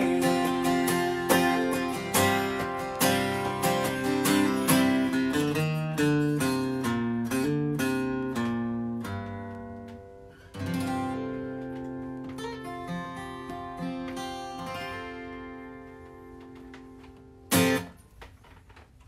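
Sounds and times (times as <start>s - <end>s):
guitar chord ringing out: 0.0s - 5.3s
acoustic guitar strumming: 0.0s - 18.2s
light guitar notes: 0.0s - 18.3s.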